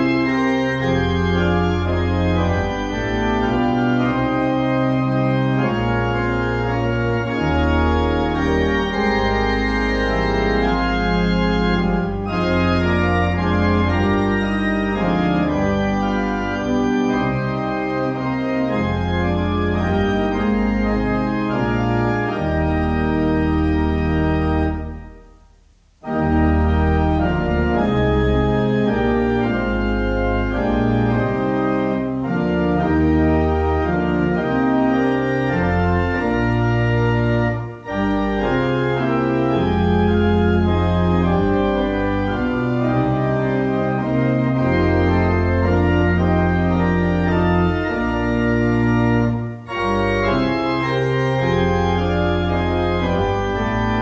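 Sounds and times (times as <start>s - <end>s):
organ playing hymn chords: 0.0s - 54.0s.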